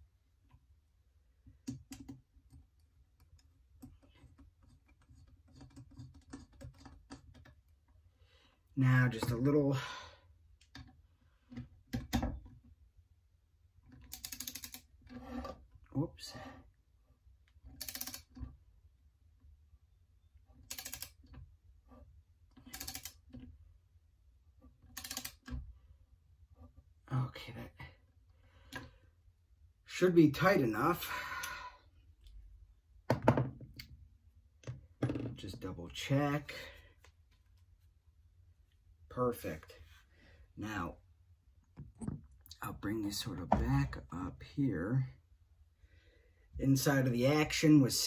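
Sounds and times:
small metal clicks: 13.8s - 15.2s, 17.5s - 18.6s, 20.6s - 21.4s, 24.8s - 25.6s
socket ratchet clicking: 14.1s - 14.9s, 17.8s - 18.3s, 24.9s - 25.5s.

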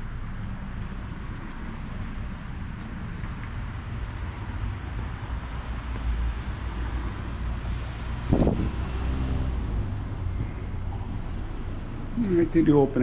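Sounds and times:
traffic rumble: 0.0s - 13.0s
wind on microphone: 7.9s - 9.6s.

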